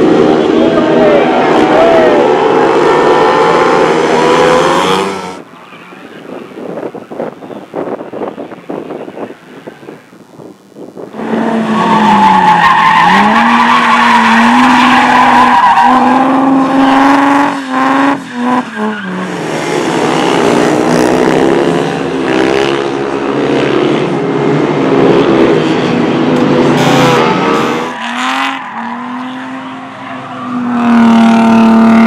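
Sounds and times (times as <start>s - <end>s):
car engines revving high: 0.0s - 32.0s
tyres squealing on tarmac: 11.2s - 19.4s.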